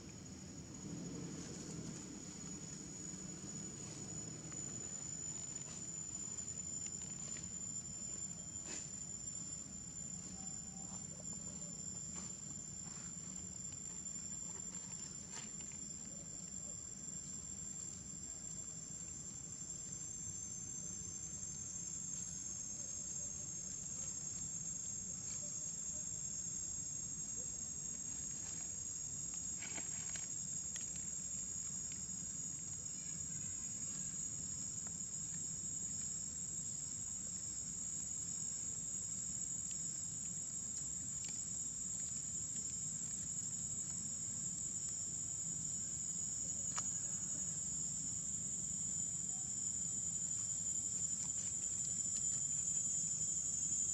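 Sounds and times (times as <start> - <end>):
high-pitched insect chorus: 0.0 - 53.9.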